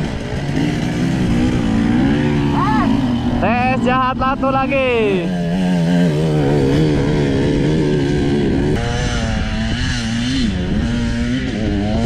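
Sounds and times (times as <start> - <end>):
dirt bike engine at low revs: 0.0 - 12.0.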